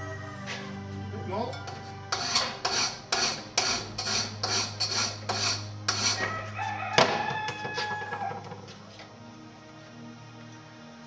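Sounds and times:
file rasping on steel: 2.1s - 6.3s.

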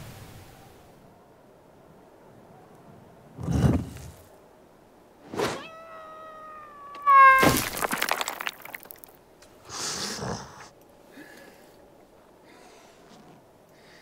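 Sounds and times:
whining meow-like cry: 5.4s - 7.6s
crackling noise: 6.8s - 9.6s.

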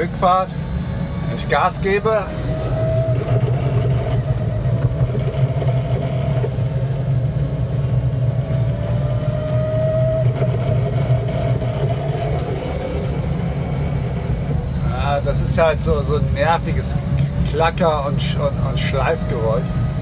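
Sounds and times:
vehicle drivetrain drone: 0.0s - 20.0s
gearbox clacking and grinding: 1.9s - 7.2s, 9.4s - 16.9s.

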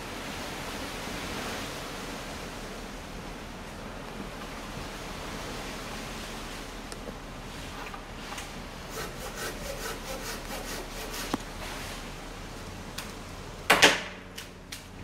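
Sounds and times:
hand saw rasping through wood: 8.9s - 11.4s.

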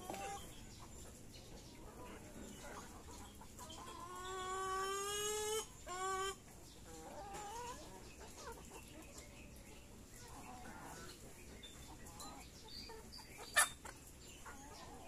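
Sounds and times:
chickens clucking: 0.0s - 15.0s
chicken calling: 1.8s - 8.7s, 10.2s - 15.0s.

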